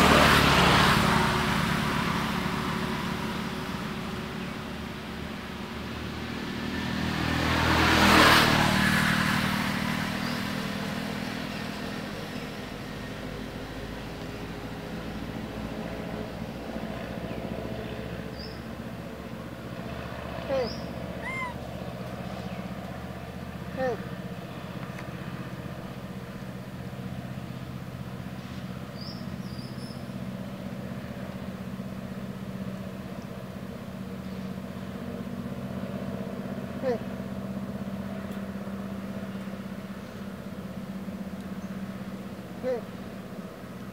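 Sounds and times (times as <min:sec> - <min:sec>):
vehicle driving past: 0:00.0 - 0:43.9
engine idling: 0:09.9 - 0:43.9.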